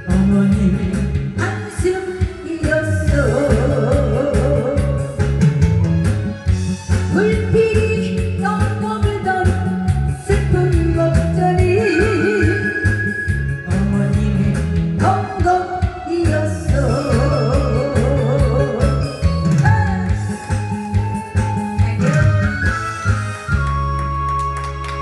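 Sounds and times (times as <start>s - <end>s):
woman singing into microphone: 0.0s - 5.2s, 7.1s - 20.8s
amplified backing music with beat: 0.0s - 25.0s.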